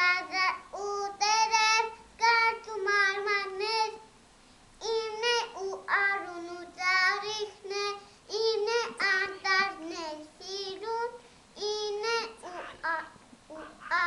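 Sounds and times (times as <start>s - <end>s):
child singing: 0.0s - 4.1s, 4.8s - 14.0s.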